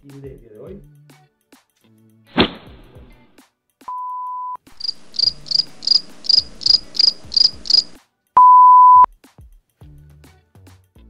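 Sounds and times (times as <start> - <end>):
electronic beep tones: 3.9 - 4.6, 8.4 - 9.1
cricket chirps: 4.8 - 8.0.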